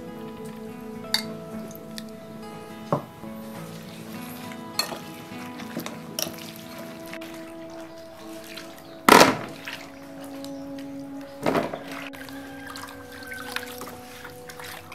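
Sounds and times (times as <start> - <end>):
background music: 0.0 - 14.9
water splashing in metal basin: 3.7 - 10.5, 11.4 - 14.9.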